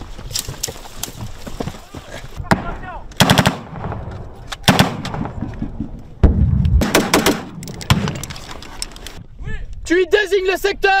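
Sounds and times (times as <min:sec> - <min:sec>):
gunfire echoes: 0:02.5 - 0:05.4, 0:06.2 - 0:08.2
automatic weapon fire: 0:03.2 - 0:04.0, 0:04.7 - 0:05.3, 0:06.8 - 0:08.2.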